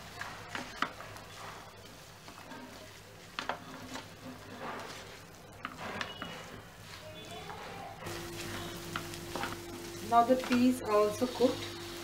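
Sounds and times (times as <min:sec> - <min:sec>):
faint sizzle of frying: 0:00.0 - 0:12.0
spatula scraping a pan: 0:00.0 - 0:12.0.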